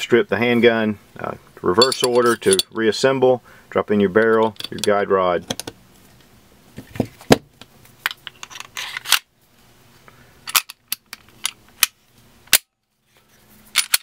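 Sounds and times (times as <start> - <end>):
pistol parts clicking and clacking: 4.3 - 5.8, 10.5 - 12.7, 13.7 - 14.0
pistol slide scraping on rails: 8.3 - 9.2.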